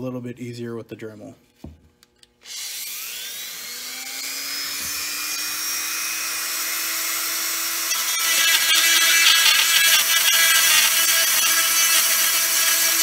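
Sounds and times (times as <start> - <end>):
drill bit cutting gritty: 2.4 - 13.0
rotary tool motor whine: 2.4 - 13.0.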